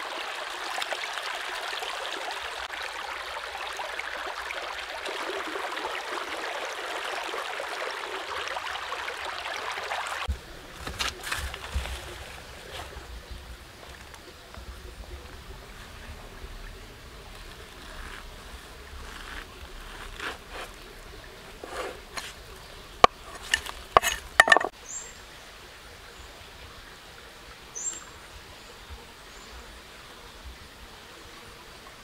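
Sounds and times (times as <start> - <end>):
knife cutting and scraping: 17.8 - 20.9, 21.5 - 24.7
knife knocking on wooden board: 24.0 - 24.7.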